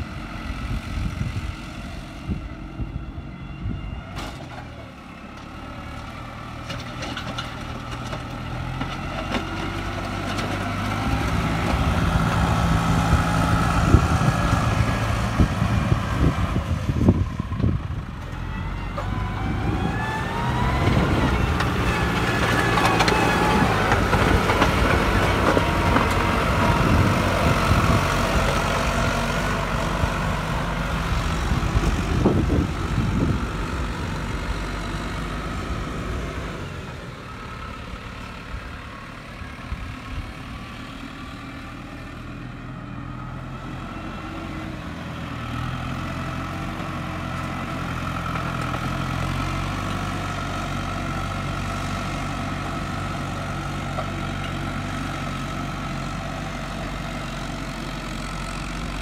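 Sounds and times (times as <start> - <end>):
tractor diesel engine under load: 0.0 - 59.0.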